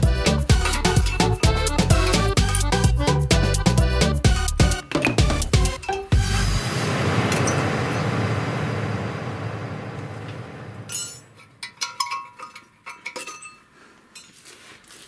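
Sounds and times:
loud hiss: 0:06.2 - 0:10.9.

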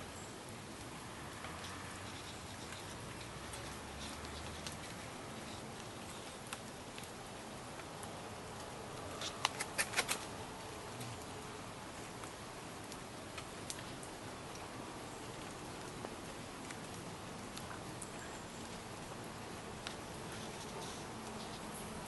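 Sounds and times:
faint steady hiss: 0:00.0 - 0:22.0
water drips pattering: 0:00.4 - 0:22.0.

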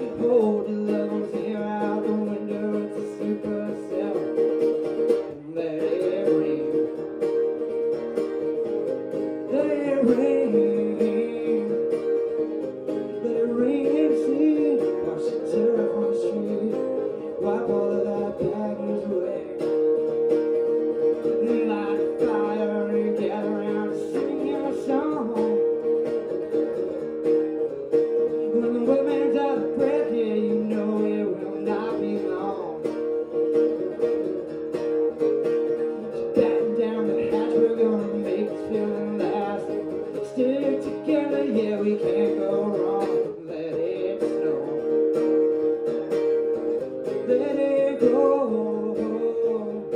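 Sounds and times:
man singing: 0:00.0 - 0:49.9
strummed acoustic guitar: 0:00.0 - 0:49.9.

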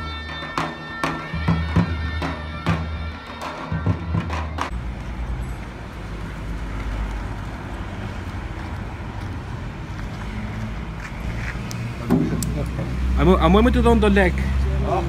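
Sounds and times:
folk music with drums and pipe: 0:00.0 - 0:05.0.

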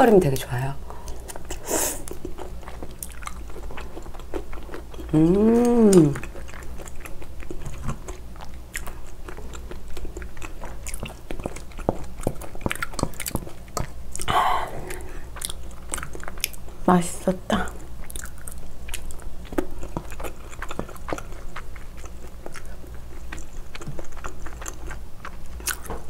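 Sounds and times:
wet chewing with mouth clicks: 0:00.9 - 0:16.8, 0:17.6 - 0:26.0
person humming mmm: 0:05.0 - 0:06.4, 0:14.2 - 0:15.3.

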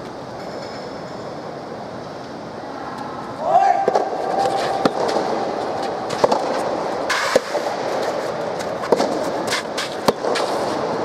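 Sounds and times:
rackets striking soft ball: 0:03.8 - 0:11.0.

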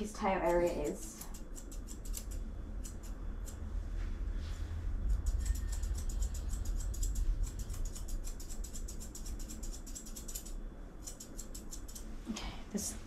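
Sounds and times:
scissors snipping hair: 0:00.3 - 0:03.6, 0:05.1 - 0:12.1.

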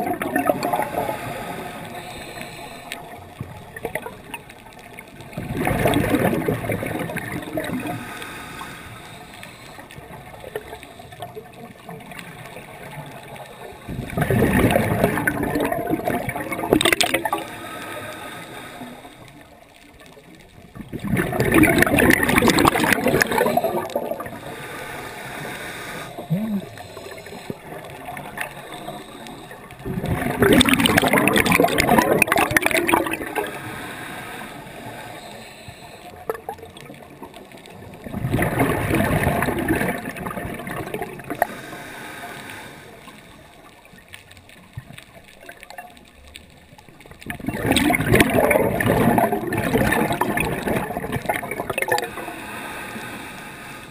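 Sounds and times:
diver's exhaled bubbles rushing: 0:00.0 - 0:01.1, 0:05.3 - 0:08.0, 0:13.9 - 0:17.4, 0:20.8 - 0:24.4, 0:26.2 - 0:28.5, 0:29.8 - 0:33.6, 0:38.0 - 0:41.5, 0:47.2 - 0:52.1
underwater hiss: 0:00.0 - 0:04.6, 0:05.5 - 0:19.6, 0:20.3 - 0:44.7, 0:47.0 - 0:53.9.

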